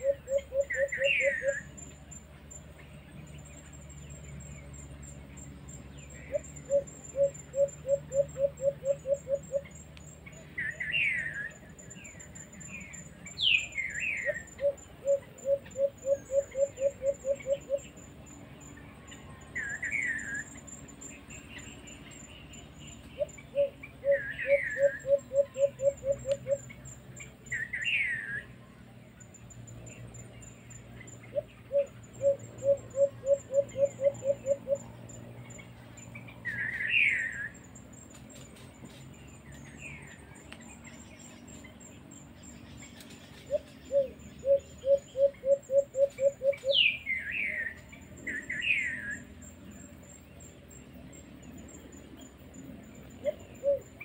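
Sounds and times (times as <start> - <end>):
dove cooing: 0.0 - 1.8, 6.1 - 9.7, 13.8 - 17.9, 23.1 - 26.7, 31.3 - 34.8, 43.5 - 47.6, 53.2 - 54.0
bird chirps: 0.0 - 54.0
faint high insect whine: 0.0 - 54.0.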